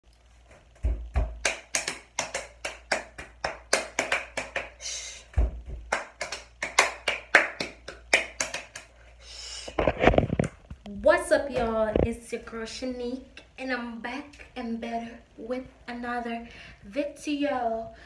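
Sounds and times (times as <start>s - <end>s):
hands clapping: 1.2s - 4.8s, 5.7s - 9.0s.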